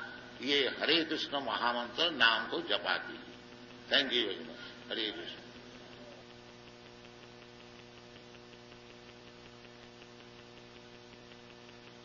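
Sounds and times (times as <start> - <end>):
electrical mains hum: 0.0 - 12.0
faint regular ticks: 3.3 - 12.0.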